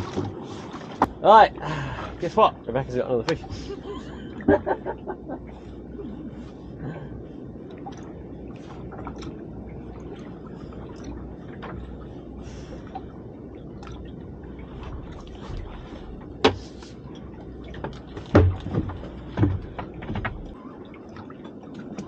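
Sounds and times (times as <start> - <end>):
knocks and thumps on boat: 0.0 - 1.5, 4.4 - 5.4, 14.7 - 22.0
water lapping against boat hull: 0.0 - 22.0.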